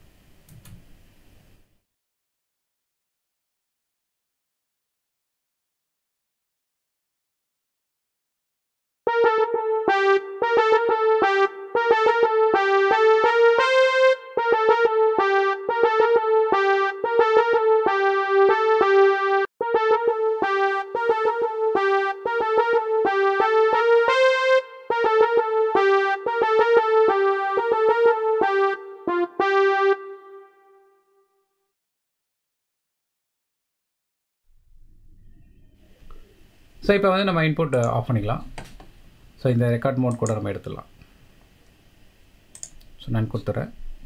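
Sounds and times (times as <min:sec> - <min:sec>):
electronic keyboard melody: 0:09.1 - 0:31.2.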